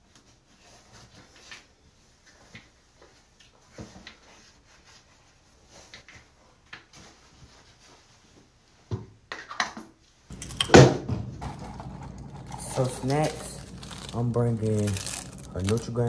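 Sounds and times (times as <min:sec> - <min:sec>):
faint rustling and handling: 0:00.1 - 0:08.9, 0:11.3 - 0:16.0.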